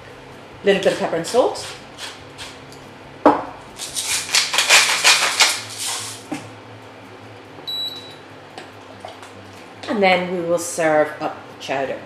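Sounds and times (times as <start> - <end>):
seasoning mill grinding: 0.7 - 2.8, 3.7 - 6.3.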